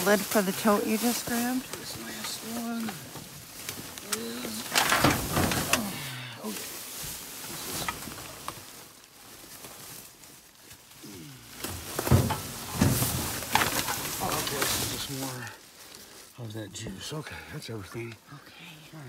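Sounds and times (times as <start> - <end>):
plastic garbage bags rustling: 0.0 - 17.2.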